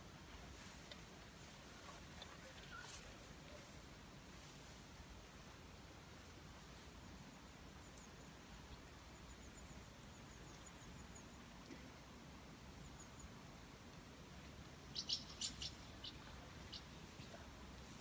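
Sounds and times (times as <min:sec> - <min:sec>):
faint bird chirping: 0:01.4 - 0:03.8, 0:06.6 - 0:13.8, 0:14.5 - 0:18.0.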